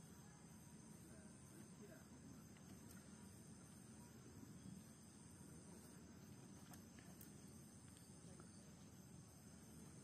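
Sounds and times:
insects chirring: 0.0s - 10.0s
faint ticks: 2.4s - 3.9s, 5.8s - 9.0s.

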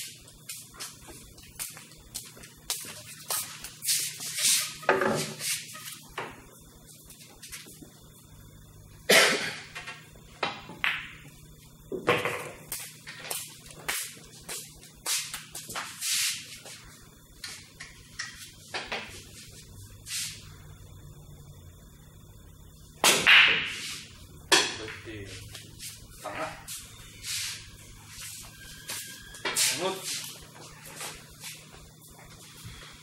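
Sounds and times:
pool balls clacking: 9.4s - 13.9s, 23.0s - 25.1s
cue striking pool ball: 10.5s - 11.2s, 23.0s - 23.8s.

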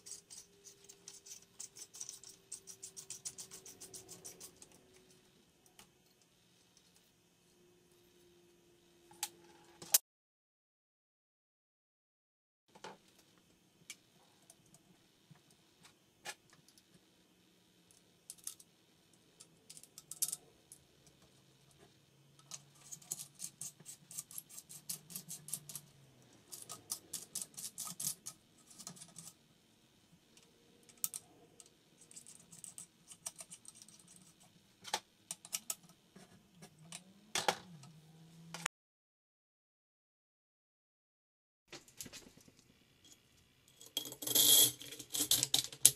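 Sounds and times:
small metal parts clicking: 17.9s - 18.7s, 19.4s - 20.8s, 26.5s - 29.4s, 30.8s - 34.4s, 43.0s - 45.9s.

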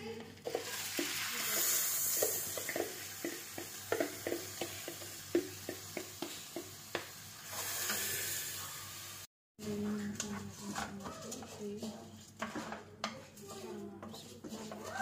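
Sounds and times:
rice sizzling in hot oil: 0.0s - 9.3s, 13.4s - 15.0s.

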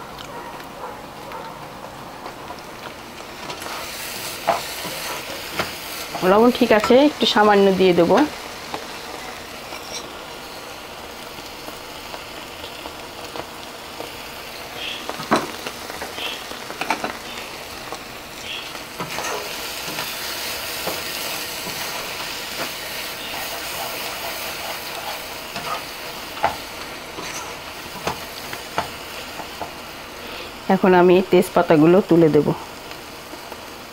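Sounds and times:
fish roe sizzling in oil: 1.8s - 33.9s
wooden spatula scraping pan: 9.6s - 10.1s, 20.7s - 28.2s.

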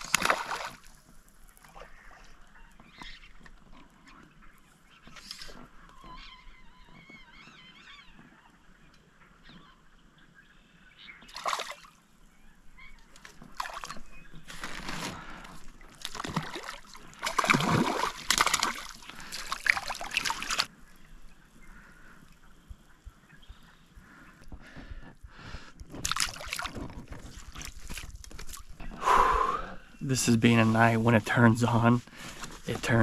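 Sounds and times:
fish splashing in water: 0.0s - 1.0s, 11.3s - 12.0s, 13.2s - 14.9s, 15.8s - 20.7s, 26.0s - 28.6s.

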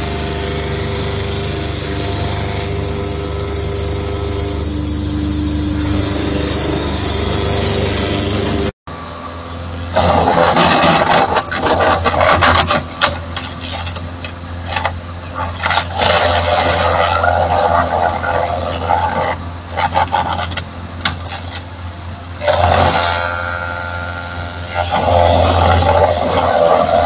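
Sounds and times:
electric motor humming: 0.0s - 27.0s
wood crusher chipping branches: 9.0s - 27.0s.

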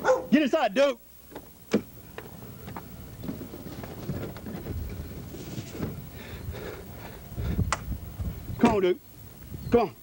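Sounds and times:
wind buffeting microphone: 3.1s - 8.8s.

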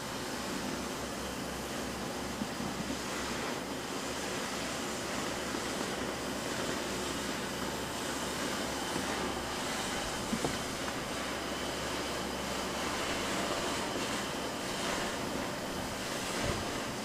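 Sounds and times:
cutting torch hissing: 5.3s - 17.0s.

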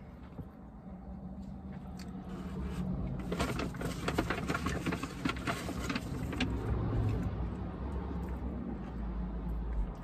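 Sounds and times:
food crackling and rustling: 2.2s - 7.5s.

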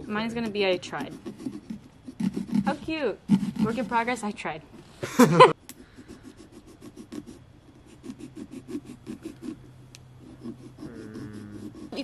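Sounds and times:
knife sawing through pumpkin: 0.0s - 4.2s, 5.9s - 12.0s.

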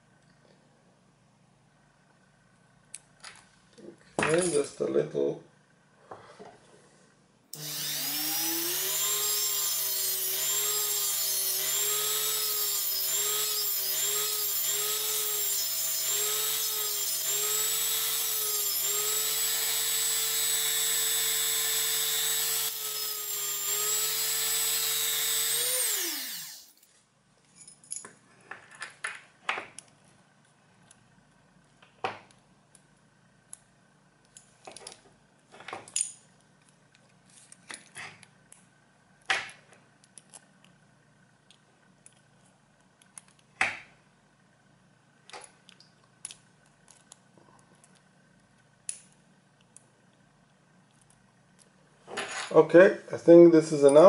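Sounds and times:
rotary tool grinding whine: 7.6s - 26.9s.

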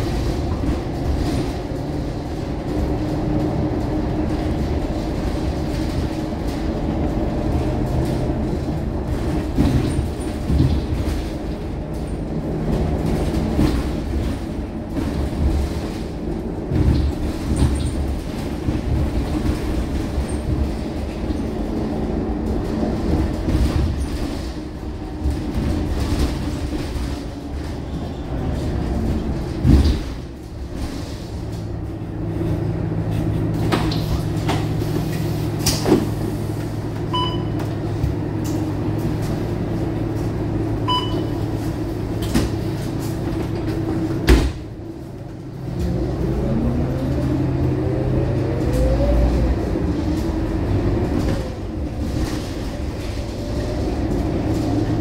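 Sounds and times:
body knocks and rattles: 0.0s - 21.8s
bus diesel engine running: 0.0s - 55.0s
road noise: 0.0s - 55.0s.

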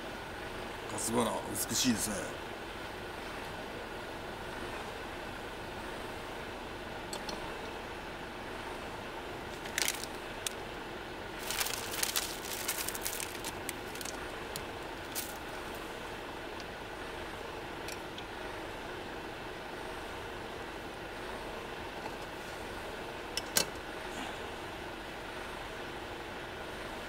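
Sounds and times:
plastic wrapper crinkling: 9.5s - 10.6s, 11.4s - 15.8s.

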